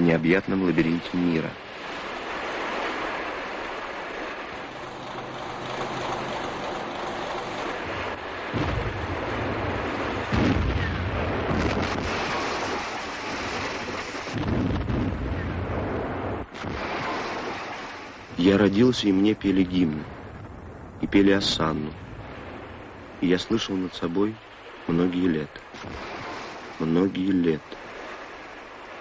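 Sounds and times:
rough sea: 0.0 - 29.0
wind: 0.0 - 29.0
rumbling explosion booms: 8.5 - 12.7, 14.3 - 17.1.

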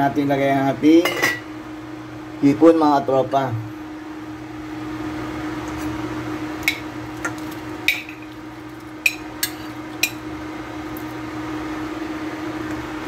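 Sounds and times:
steady low hum: 0.0 - 13.0
bowl clinking against pot: 6.6 - 8.3, 9.0 - 10.2.

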